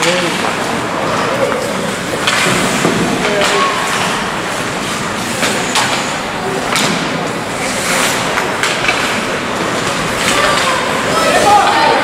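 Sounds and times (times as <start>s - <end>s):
rink hubbub: 0.0s - 12.0s
skates scraping ice: 0.0s - 12.0s
sticks clacking on puck: 1.4s - 12.0s.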